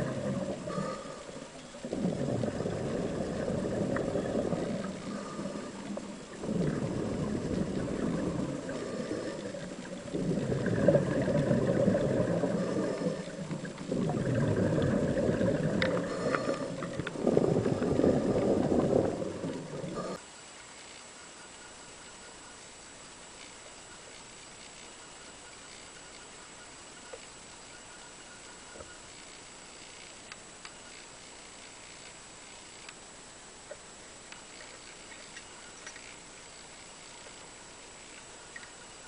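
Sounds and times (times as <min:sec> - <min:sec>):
diver exhaling bubbles underwater: 0:00.0 - 0:20.2.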